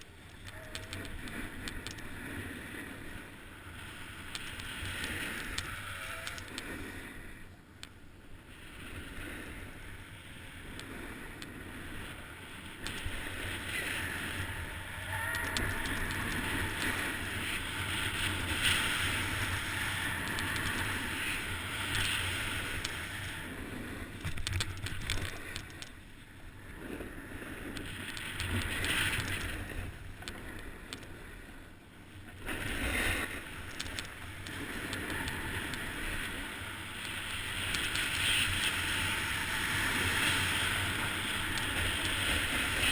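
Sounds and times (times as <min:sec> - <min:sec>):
skis scraping over snow: 0:00.0 - 0:07.4, 0:08.4 - 0:25.9, 0:26.5 - 0:42.9
wind buffeting microphone: 0:08.8 - 0:31.2.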